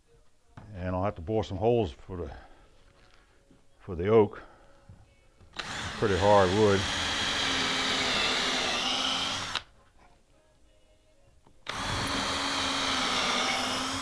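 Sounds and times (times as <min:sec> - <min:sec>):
cordless drill boring into wood: 0:05.6 - 0:09.7, 0:11.7 - 0:14.0.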